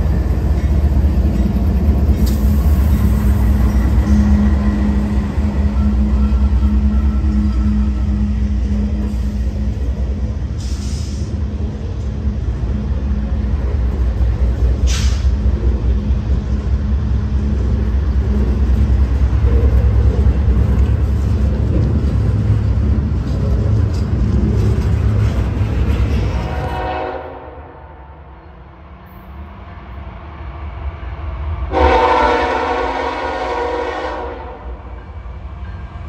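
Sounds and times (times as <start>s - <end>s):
freight train wheels rumbling on rails: 0.0s - 36.0s
short hisses: 14.9s - 15.3s.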